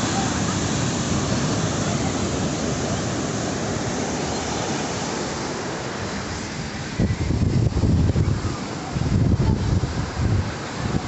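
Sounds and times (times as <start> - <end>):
ocean surf breaking on sand: 0.0 - 11.0.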